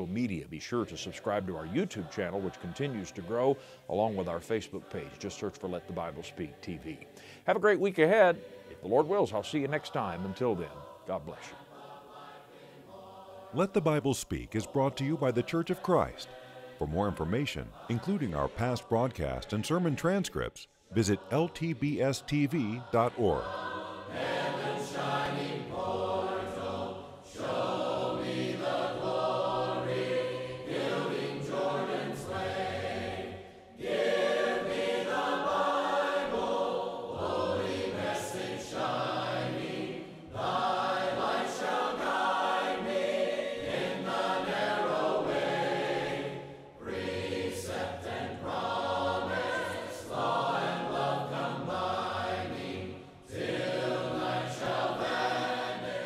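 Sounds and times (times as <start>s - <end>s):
choir singing a hymn: 0.0s - 56.0s.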